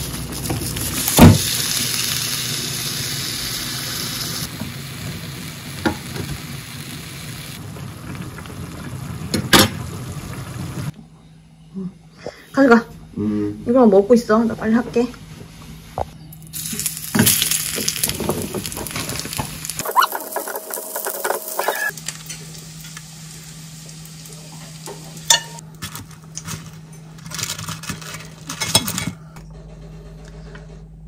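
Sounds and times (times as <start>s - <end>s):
food sizzling in hot oil: 0.0s - 10.9s, 16.4s - 25.6s.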